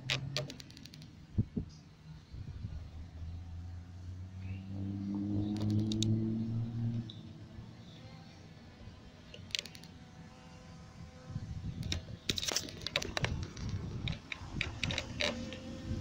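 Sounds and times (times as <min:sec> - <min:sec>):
sharp clicks and rattles: 0:00.0 - 0:01.2, 0:05.5 - 0:06.2, 0:09.3 - 0:10.0, 0:11.8 - 0:15.7.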